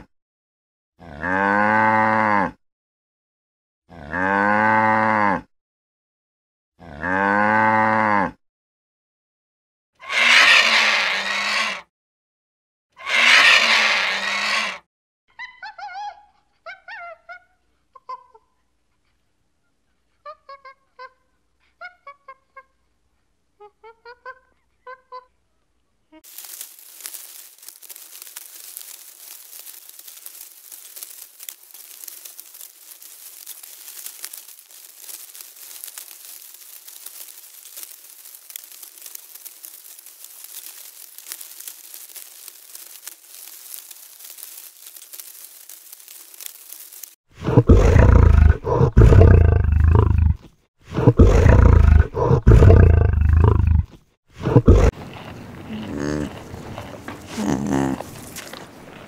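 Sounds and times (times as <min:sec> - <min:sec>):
faint crackling rustle: 0:26.2 - 0:59.0
lion roaring: 0:47.4 - 0:55.0.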